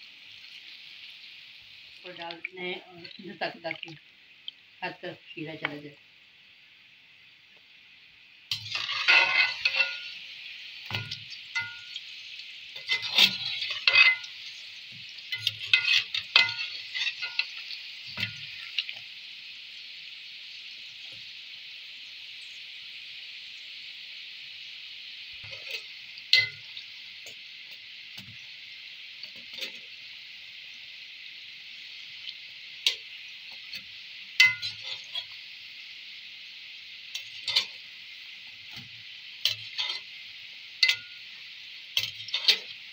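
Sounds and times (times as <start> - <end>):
deep-frying sizzle: 0.0 - 42.9
skimmer clinking against pan: 8.5 - 10.1, 10.9 - 12.0, 34.4 - 35.3, 37.2 - 37.8, 40.8 - 41.2, 42.0 - 42.7.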